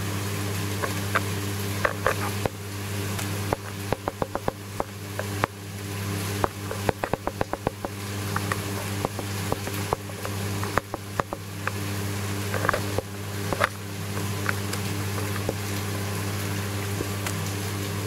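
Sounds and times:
aquarium pumps humming: 0:00.0 - 0:18.0
sharp clicks and pops: 0:03.2 - 0:05.6, 0:06.4 - 0:11.8, 0:12.5 - 0:15.6.

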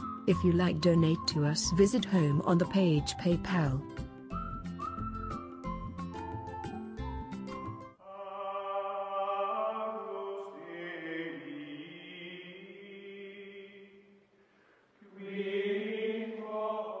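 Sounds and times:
slow music with choir-like chords: 0:08.0 - 0:14.3, 0:15.0 - 0:17.0.

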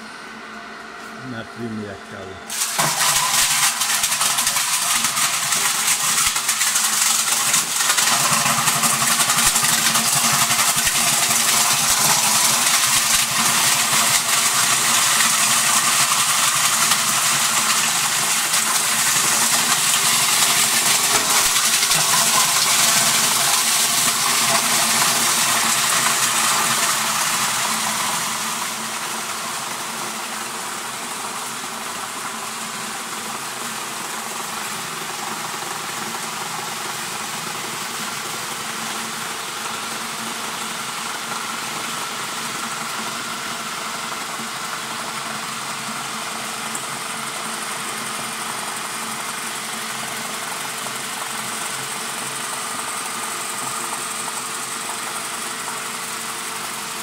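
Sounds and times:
grinder drive humming: 0:00.0 - 0:46.0
plastic crunching in grinder: 0:02.5 - 0:45.8.

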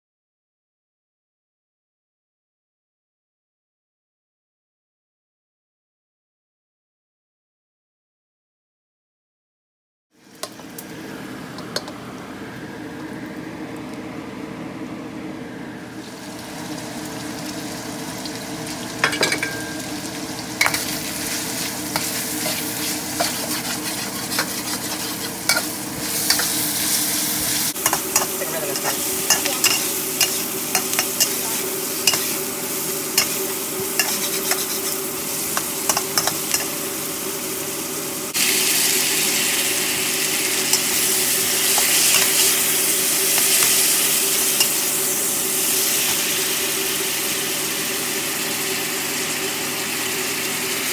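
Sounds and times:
onion sizzling in a wok: 0:10.1 - 0:14.0, 0:15.9 - 0:50.9
metal spatula scraping a pan: 0:20.6 - 0:32.4, 0:33.2 - 0:36.7, 0:40.7 - 0:44.9.

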